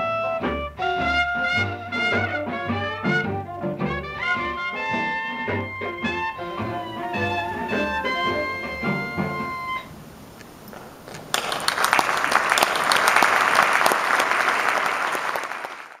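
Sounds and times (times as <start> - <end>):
audience applause: 4.3 - 9.6, 11.0 - 16.0.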